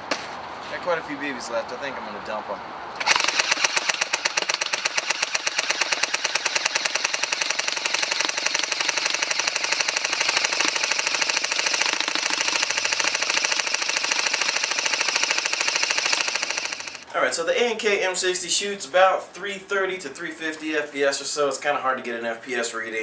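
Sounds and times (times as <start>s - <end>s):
airsoft gun full-auto firing: 3.0s - 17.0s.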